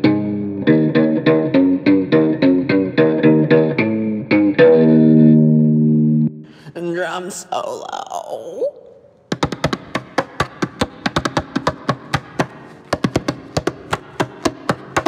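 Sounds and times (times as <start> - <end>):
sharp uneven knocks: 9.3 - 15.0.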